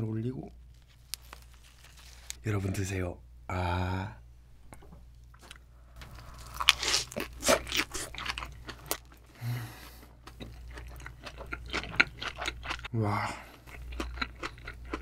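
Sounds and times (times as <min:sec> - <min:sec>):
crisp crunchy chewing: 0:05.3 - 0:12.9, 0:13.6 - 0:15.0.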